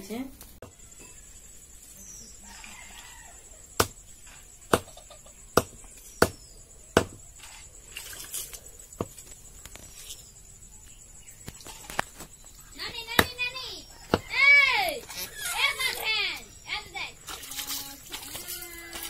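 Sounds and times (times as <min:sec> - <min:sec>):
cleaver chopping on wooden block: 0:03.8 - 0:04.0, 0:05.6 - 0:06.4, 0:07.0 - 0:07.2.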